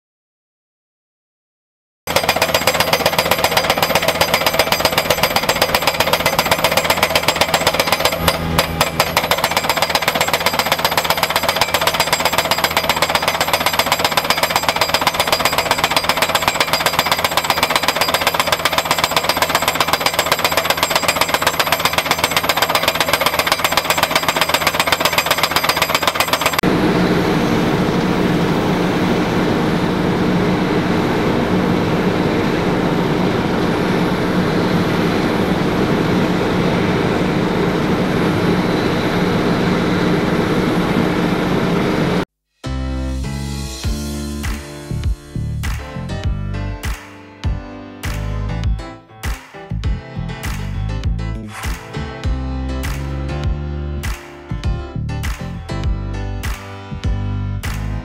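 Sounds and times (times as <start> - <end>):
post driver hammering metal post: 2.1 - 26.6
paver engine running low: 2.1 - 42.2.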